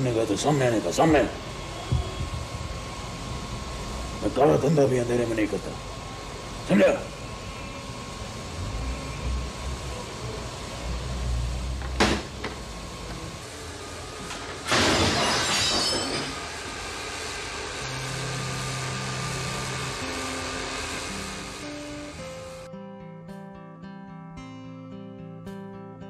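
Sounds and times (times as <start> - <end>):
loud crash: 14.6 - 16.4.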